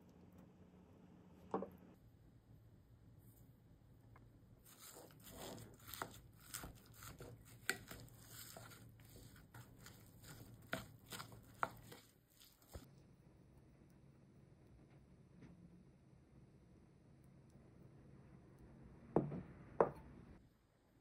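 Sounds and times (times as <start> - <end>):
rice squishing and rustling: 4.6 - 12.9.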